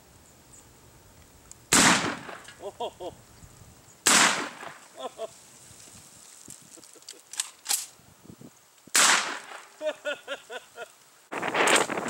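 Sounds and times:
shotgun blasts: 0:01.7 - 0:02.5, 0:04.0 - 0:04.8, 0:08.9 - 0:09.7.

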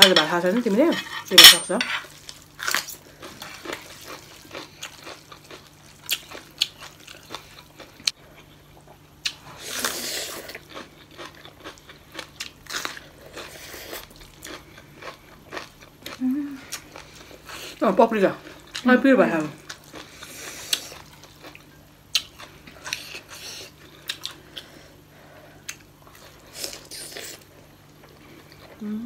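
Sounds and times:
chewing crunchy pepper: 0:02.2 - 0:17.8, 0:19.5 - 0:24.8.

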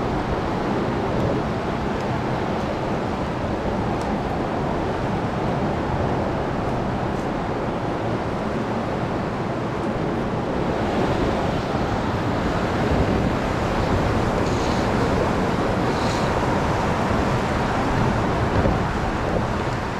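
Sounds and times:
river water rushing: 0:00.0 - 0:19.9.

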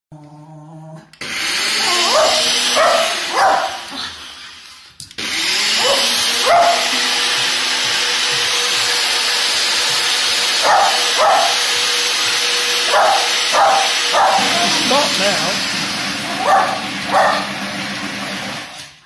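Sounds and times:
blender running: 0:01.2 - 0:19.0
dog barking sharply: 0:02.1 - 0:03.8, 0:05.8 - 0:06.9, 0:10.6 - 0:11.6, 0:12.9 - 0:14.8, 0:16.4 - 0:17.5.

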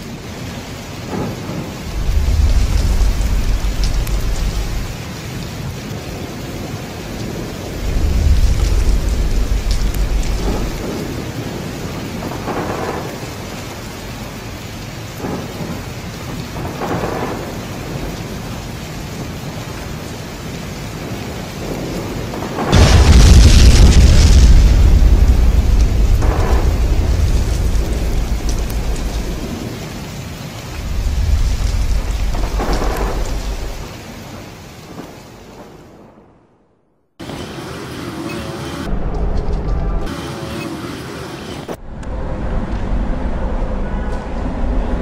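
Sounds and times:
rolling thunder: 0:00.0 - 0:37.4
steady rain: 0:00.0 - 0:45.0
loud deep thunder boom: 0:01.1 - 0:05.0, 0:07.8 - 0:11.3, 0:22.6 - 0:29.6, 0:30.8 - 0:33.9.

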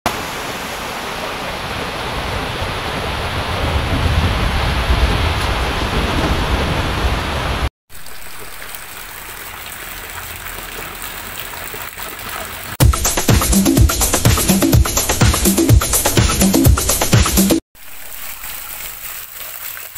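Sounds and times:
flooded river rushing: 0:00.1 - 0:12.8
steady rain: 0:00.1 - 0:12.8
runoff water splashing onto steps: 0:07.9 - 0:12.9, 0:17.8 - 0:19.9.

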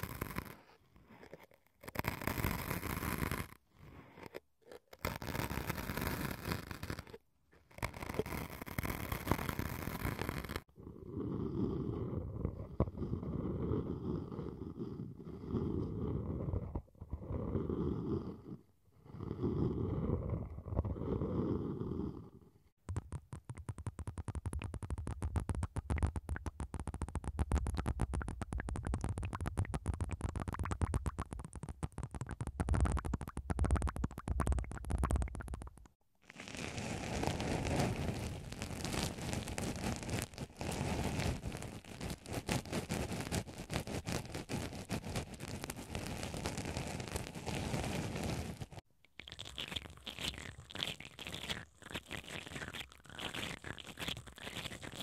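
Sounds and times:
brushes rubbing inside ears: 0:00.0 - 0:10.7, 0:22.9 - 0:55.0
cotton swabs scratching foam: 0:00.0 - 0:10.7, 0:36.3 - 0:48.8
wooden spoons rubbing microphones: 0:37.3 - 0:48.8.

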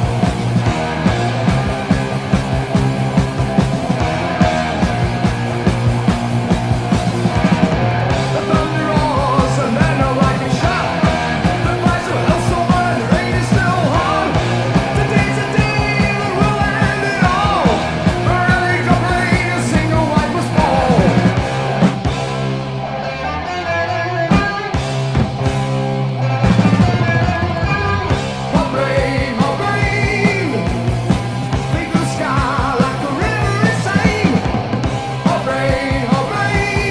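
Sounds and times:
bending electric guitar lead: 0:00.0 - 0:36.9
heavy metal band playing: 0:00.0 - 0:36.9.

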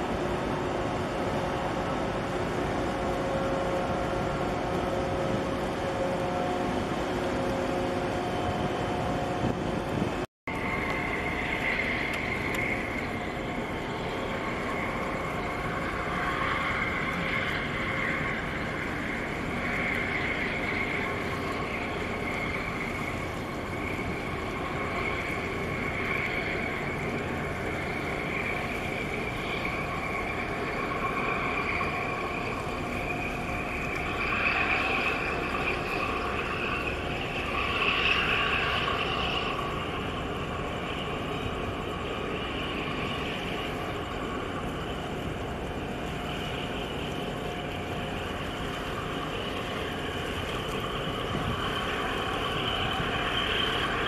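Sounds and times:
constant hiss: 0:00.0 - 0:54.0
ship engine drone: 0:00.0 - 0:54.0.

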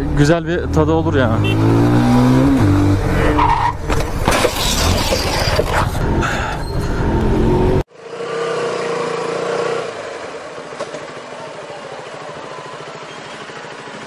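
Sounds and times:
city traffic: 0:00.0 - 0:14.0
motorcycle road and engine noise: 0:00.0 - 0:14.0
motorcycle engine at low speed: 0:06.9 - 0:14.0.

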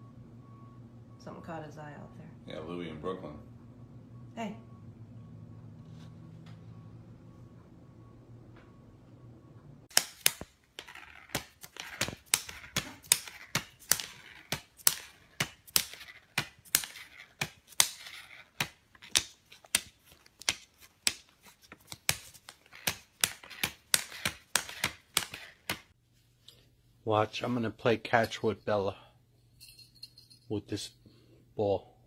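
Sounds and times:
banknotes crinkling: 0:09.9 - 0:26.0.

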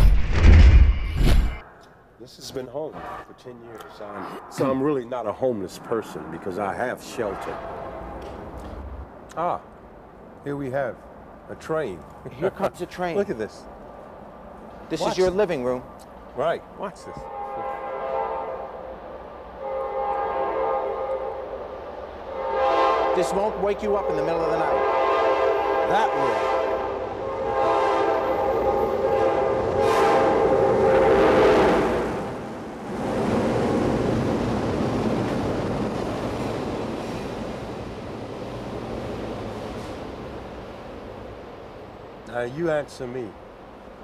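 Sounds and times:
low train rumble: 0:01.5 - 0:44.0
train horn blowing: 0:17.0 - 0:32.5.

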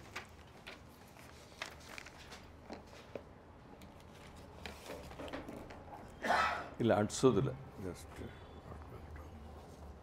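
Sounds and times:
paper rustling: 0:00.0 - 0:03.2
low room hum: 0:00.0 - 0:10.0.

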